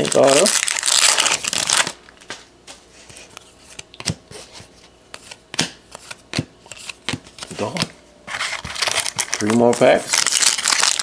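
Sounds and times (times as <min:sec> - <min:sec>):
card wrapper crinkling and ripping: 0:00.0 - 0:02.2, 0:08.4 - 0:11.0.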